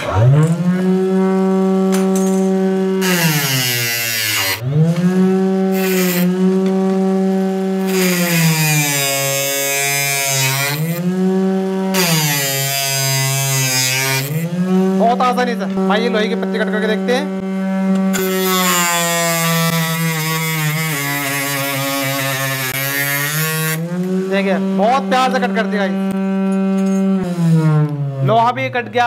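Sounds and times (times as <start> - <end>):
table saw motor whining: 0.0 - 28.3
metal grinding noise: 0.0 - 28.5.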